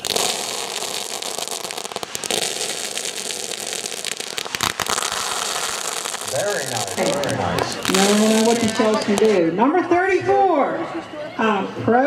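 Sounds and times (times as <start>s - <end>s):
firework crackling: 0.0s - 9.5s
firework sharp cracks: 0.0s - 9.5s.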